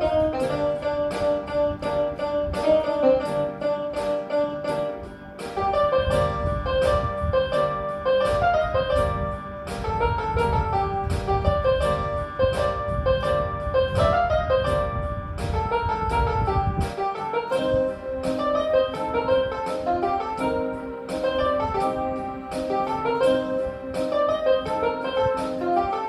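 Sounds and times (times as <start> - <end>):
electronic keyboard piano melody: 0.0 - 26.0.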